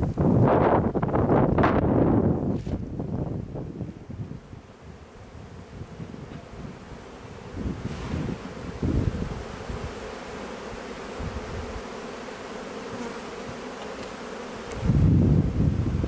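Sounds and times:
wind buffeting microphone: 0.0 - 10.1, 11.1 - 11.8, 14.7 - 16.0
bees buzzing: 0.8 - 16.0.

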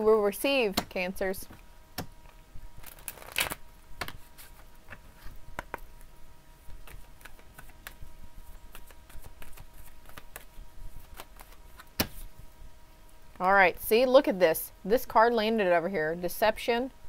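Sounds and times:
cards being shuffled: 2.8 - 5.9, 6.7 - 12.3.

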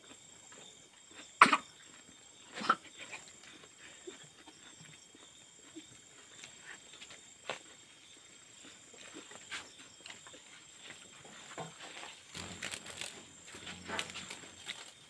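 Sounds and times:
man chewing rice: 3.0 - 11.0.

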